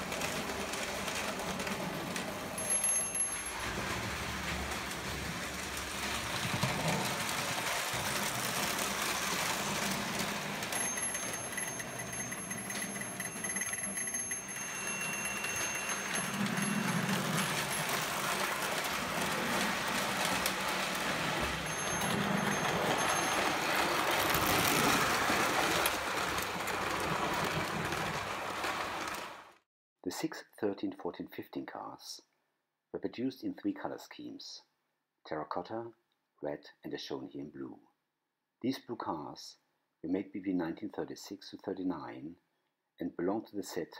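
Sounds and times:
toy train wheels rattling on rails: 0.0 - 29.5.

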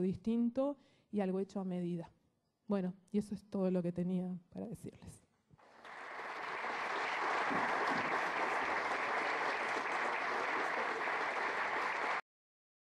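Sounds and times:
audience applauding: 5.6 - 12.2.

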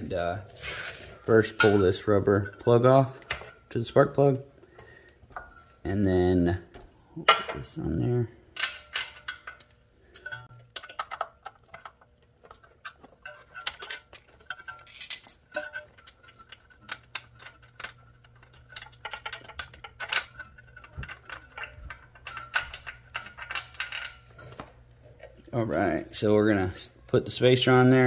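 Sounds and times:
metal wrench clinking on engine: 12.6 - 24.3.

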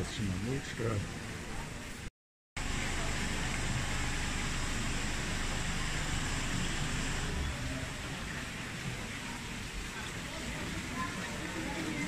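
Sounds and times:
steady rushing hiss: 2.6 - 9.1.

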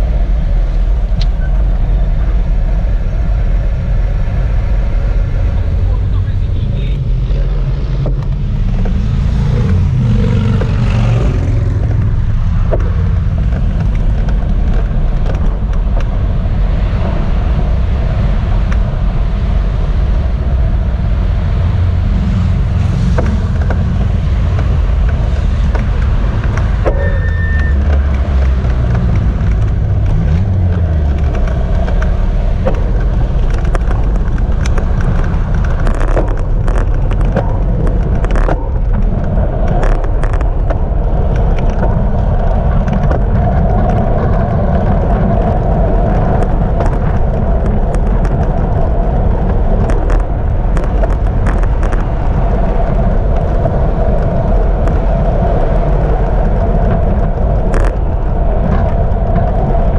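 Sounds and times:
road traffic rumble: 0.0 - 59.9
wind on microphone: 0.0 - 59.9
short high-pitched squeak: 26.9 - 27.9.

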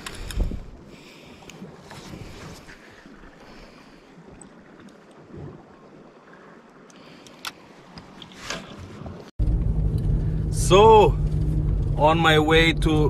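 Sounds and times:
wind buffeting microphone: 0.0 - 3.2.

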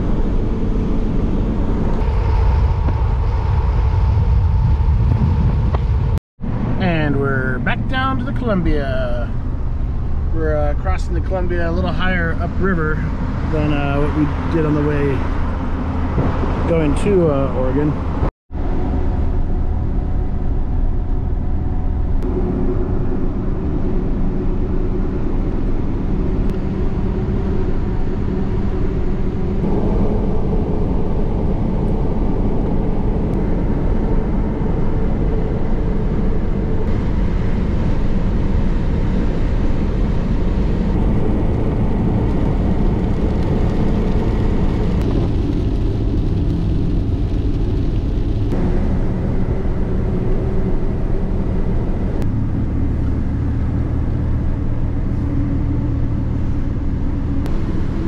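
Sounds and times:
vehicle engine and tyre rumble: 0.0 - 58.0.

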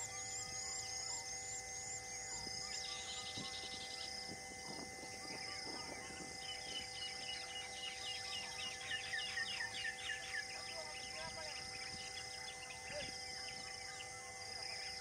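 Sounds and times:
insects droning: 0.0 - 15.0
birds calling: 2.2 - 15.0.

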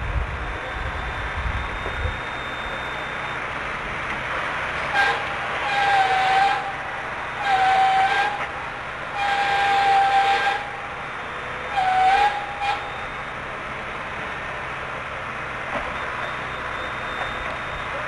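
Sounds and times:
high whistle-like tone blasts: 0.4 - 3.5, 15.9 - 18.0.

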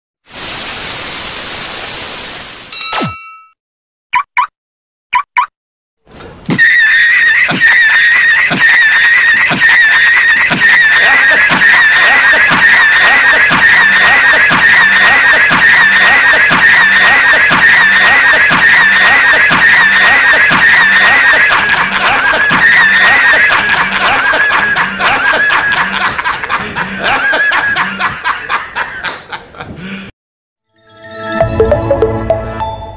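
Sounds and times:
dense overlapping laughter: 6.7 - 30.1.

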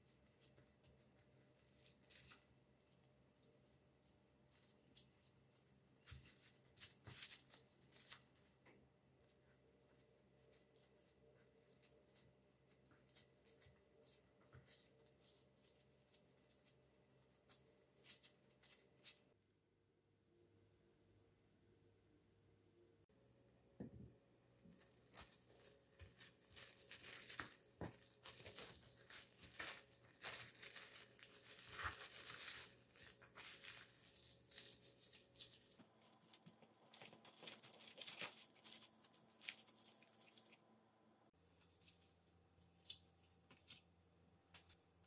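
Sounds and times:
plastic cling wrap crinkling: 24.6 - 40.7.

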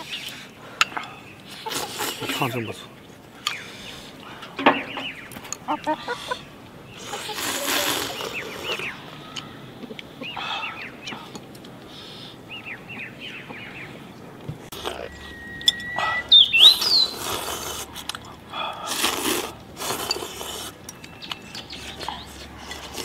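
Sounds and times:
people slurping noodle soup: 0.0 - 2.6, 5.9 - 9.0, 14.6 - 15.2, 15.8 - 20.9, 21.5 - 23.0
small birds chirping: 0.0 - 23.0.

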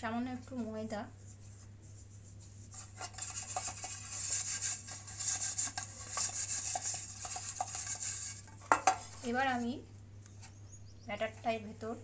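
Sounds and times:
flour rustling in cake tin: 0.4 - 9.8.

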